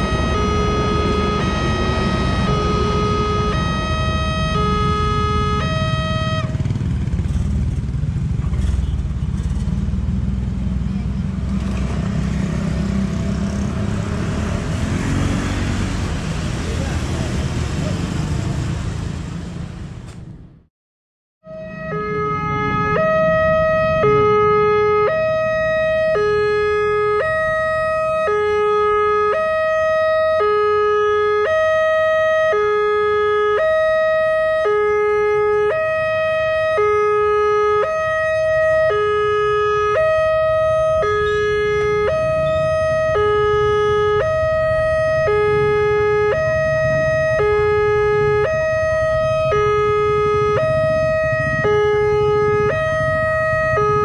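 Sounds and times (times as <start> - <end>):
level crossing two-tone alarm: 0.0 - 6.5.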